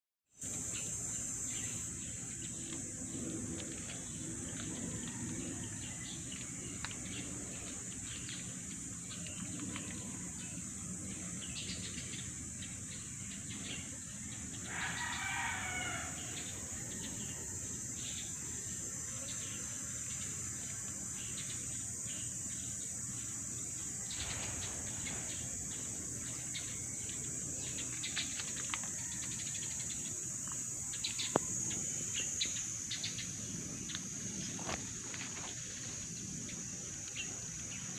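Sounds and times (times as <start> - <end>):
high insect drone: 0.4 - 37.9
rooster crowing: 4.7 - 6.6, 14.7 - 17.9, 28.6 - 30.1.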